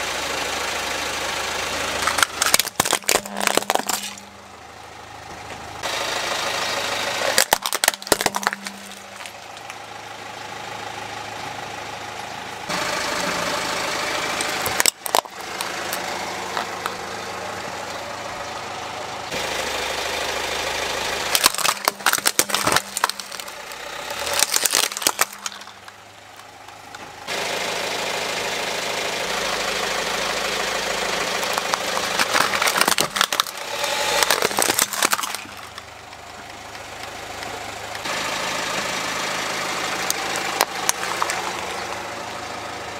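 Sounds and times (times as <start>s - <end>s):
car engine idling: 0.0s - 42.9s
plastic toys cracking and crunching: 1.8s - 4.4s, 7.2s - 9.8s, 14.4s - 17.0s, 21.3s - 27.0s, 31.3s - 36.2s, 40.0s - 42.0s.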